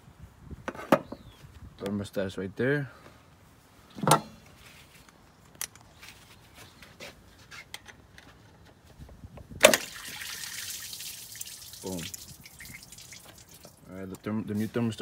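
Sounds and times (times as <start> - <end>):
coolant trickling out: 9.7 - 13.8.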